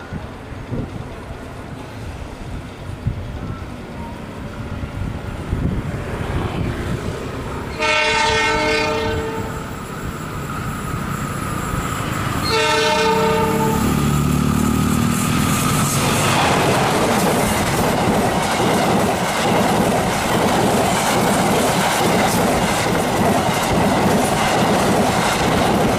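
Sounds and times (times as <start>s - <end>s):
diesel locomotive horn blasts: 7.7s - 9.8s, 12.4s - 14.3s.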